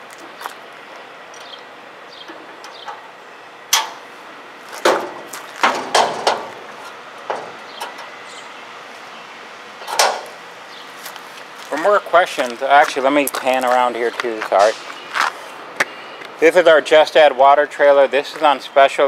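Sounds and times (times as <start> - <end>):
latch click: 3.7 - 4.0, 9.8 - 10.4
metal mesh door clanking: 3.7 - 4.0, 4.8 - 8.1, 9.8 - 10.4
metal rattles: 4.8 - 8.2.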